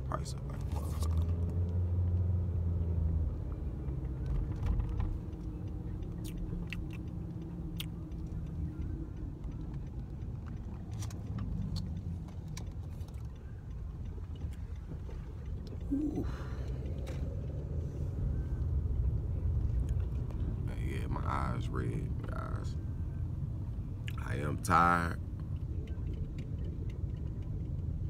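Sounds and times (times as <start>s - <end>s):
engine and road rumble: 0.0s - 28.0s.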